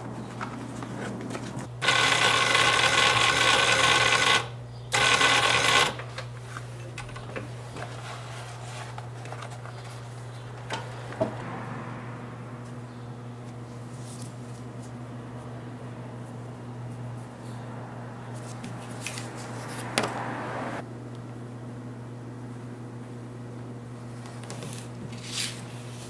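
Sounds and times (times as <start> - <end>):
sewing machine stitching: 1.8 - 6.0.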